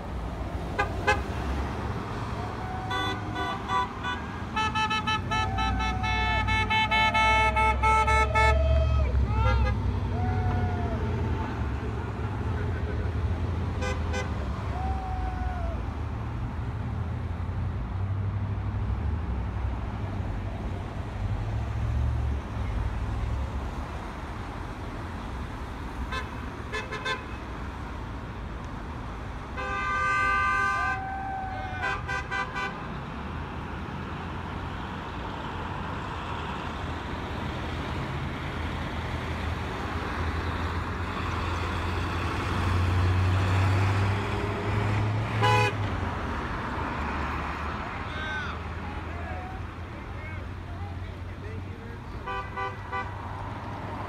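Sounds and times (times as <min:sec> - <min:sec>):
rumble of passing cars: 0:00.0 - 0:54.0
car horns honking: 0:00.8 - 0:01.5, 0:02.8 - 0:10.0, 0:12.3 - 0:14.5, 0:26.1 - 0:27.5, 0:29.5 - 0:31.1, 0:31.7 - 0:33.0, 0:45.3 - 0:45.9, 0:52.1 - 0:53.2.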